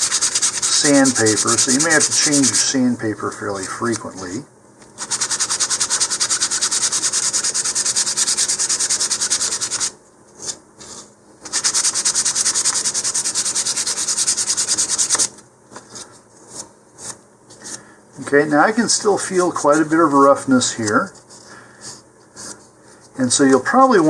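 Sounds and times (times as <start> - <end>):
sandpaper rubbing wood: 0.0 - 2.7, 5.0 - 15.3.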